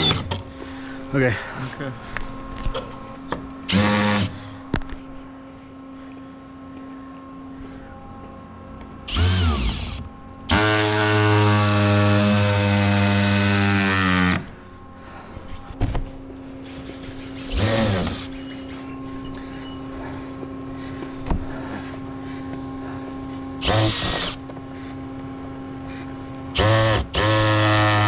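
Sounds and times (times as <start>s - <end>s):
power drill driving screws: 9.1s - 10.9s, 16.8s - 18.8s, 23.6s - 24.4s, 26.6s - 28.0s.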